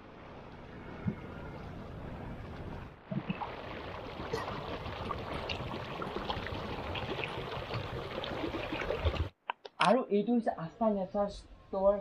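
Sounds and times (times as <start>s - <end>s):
water splashing around boat: 1.0s - 9.4s.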